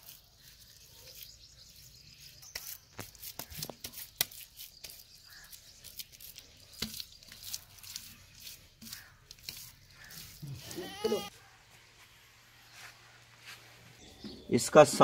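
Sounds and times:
wet clay squelching under hands: 0:02.5 - 0:11.0.

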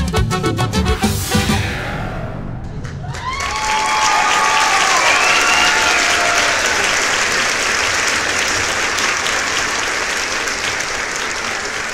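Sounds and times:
crowd applauding: 0:02.8 - 0:11.9.

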